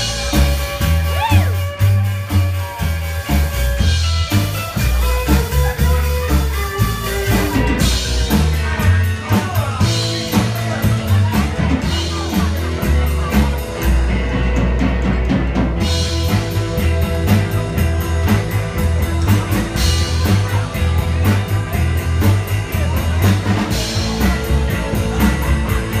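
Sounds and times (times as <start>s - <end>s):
rock band playing: 0.0s - 26.0s.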